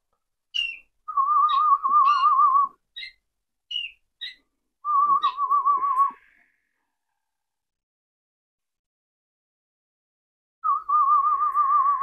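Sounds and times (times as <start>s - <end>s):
canary rolled song: 0.5s - 7.3s, 10.6s - 12.0s.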